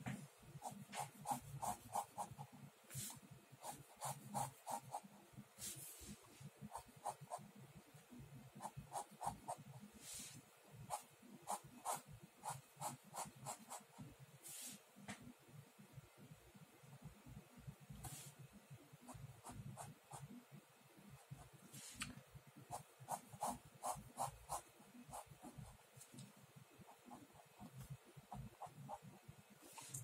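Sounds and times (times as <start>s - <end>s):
ballpoint pen scratching on paper: 0.6s - 7.5s, 8.6s - 14.0s, 22.7s - 26.2s, 26.9s - 30.0s.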